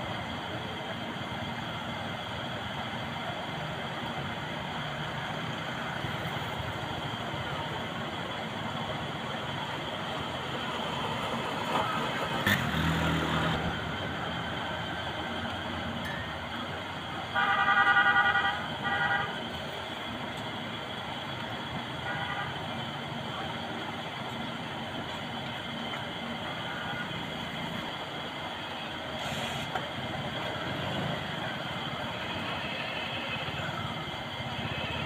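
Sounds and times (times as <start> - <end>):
roadside traffic noise: 0.0 - 35.0
vehicle horn honking: 17.3 - 19.4, 22.0 - 22.6.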